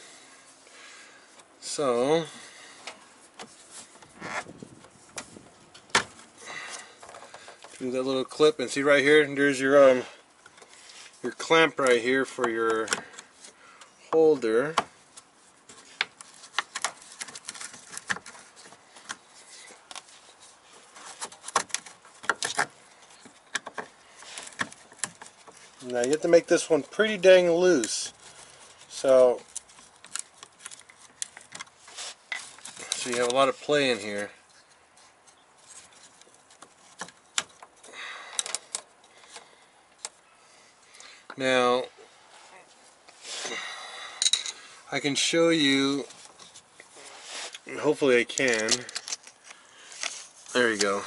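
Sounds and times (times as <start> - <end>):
small metallic clicks: 36.0 - 40.2.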